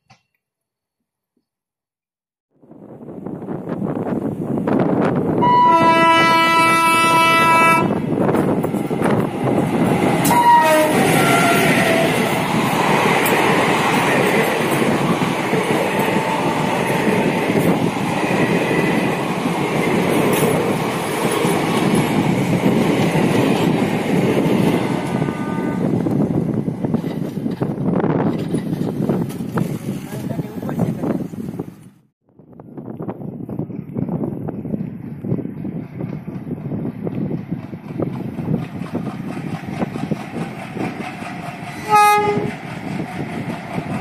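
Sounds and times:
locomotive horn blast: 0:05.4 - 0:08.0, 0:10.2 - 0:12.3, 0:24.8 - 0:26.0, 0:41.8 - 0:42.5
train wheels clattering on rails: 0:08.0 - 0:25.2, 0:26.8 - 0:29.7, 0:33.8 - 0:44.0.

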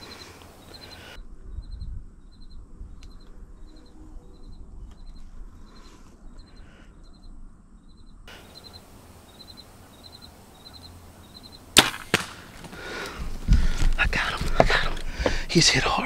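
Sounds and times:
arrow striking deer: 0:11.8 - 0:12.8.

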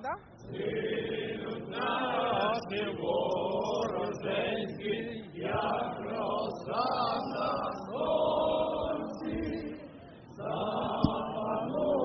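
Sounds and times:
group of voices chanting: 0:00.5 - 0:09.8.

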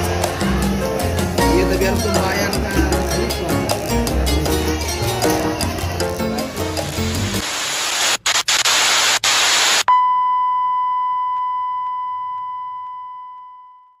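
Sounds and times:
static hiss burst: 0:06.7 - 0:09.9
high steady beep: 0:09.9 - 0:14.0.

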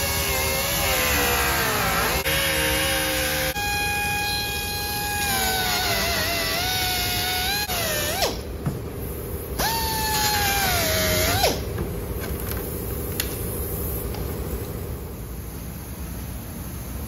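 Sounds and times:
air cut-off tool whining: 0:00.0 - 0:08.6, 0:09.5 - 0:11.8.

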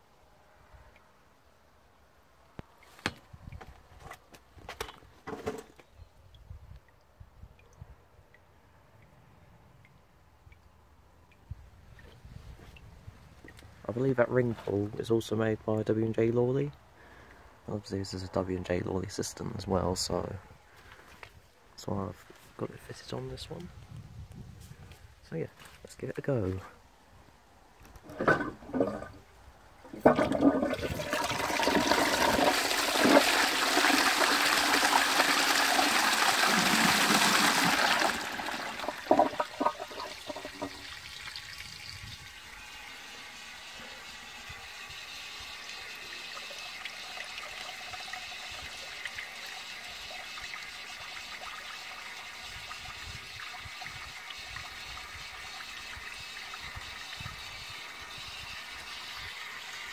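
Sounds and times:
toilet cistern flushing: 0:29.9 - 0:41.6
float valve refilling hiss: 0:29.9 - 0:59.9.

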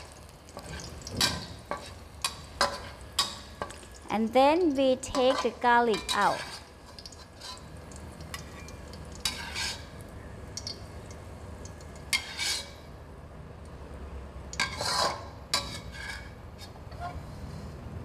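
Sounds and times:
metal spatula scraping a wok: 0:00.6 - 0:03.7, 0:05.0 - 0:07.8, 0:08.5 - 0:10.0, 0:12.1 - 0:12.9, 0:14.6 - 0:17.8.

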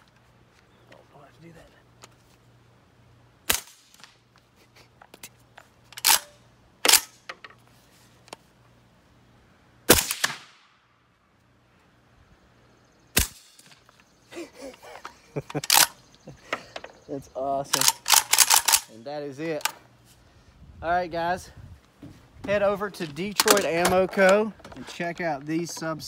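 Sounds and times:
suppressed rifle shots: 0:09.9 - 0:10.7, 0:13.2 - 0:13.8.

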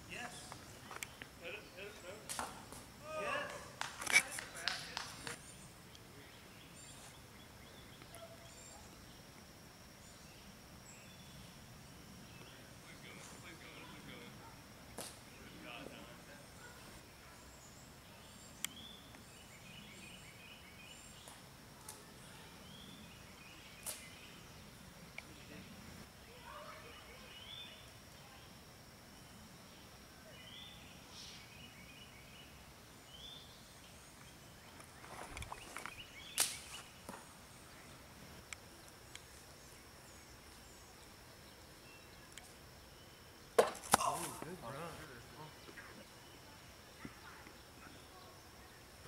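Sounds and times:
birds chirping faintly: 0:00.0 - 0:49.0
camera handling noise: 0:03.9 - 0:04.4.

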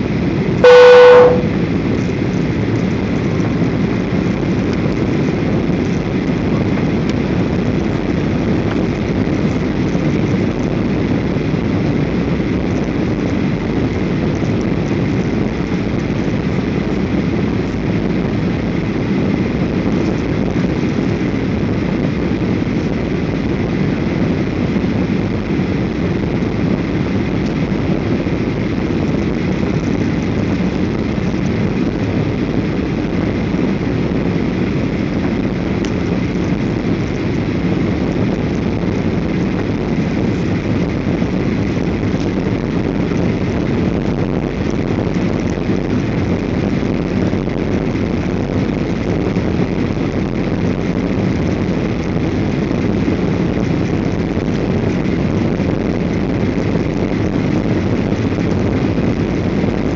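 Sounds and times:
airliner cabin engine rumble: 0:00.0 - 0:59.9
faint steady high tone: 0:00.6 - 0:01.5.

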